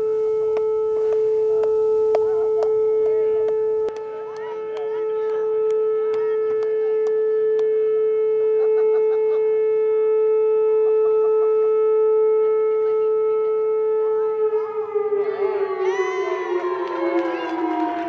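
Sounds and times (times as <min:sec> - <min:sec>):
air raid siren: 0:00.0 - 0:18.0.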